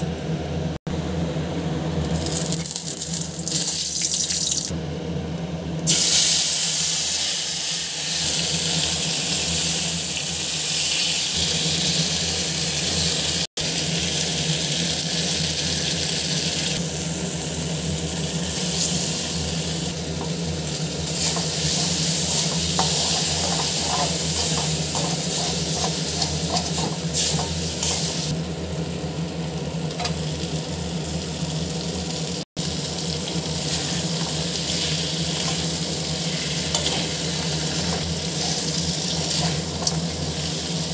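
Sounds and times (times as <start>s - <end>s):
food sizzling in oil: 2.1s - 4.7s, 5.9s - 40.9s
metal spatula scraping pan: 21.2s - 27.5s.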